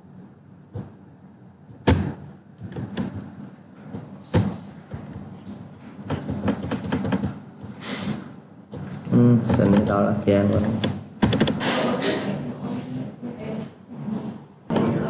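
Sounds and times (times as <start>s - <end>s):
keyboard and mouse clicking: 2.6s - 3.3s, 6.1s - 7.4s, 9.5s - 11.6s.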